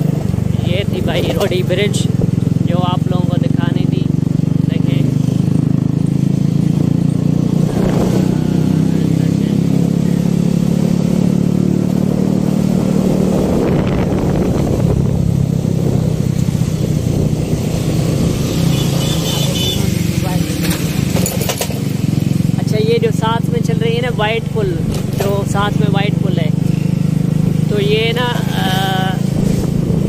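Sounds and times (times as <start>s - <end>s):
road noise: 0.0s - 30.0s
vehicle engine cruising: 0.0s - 30.0s
wind rushing on microphone: 6.3s - 9.3s, 11.9s - 18.7s, 26.5s - 30.0s.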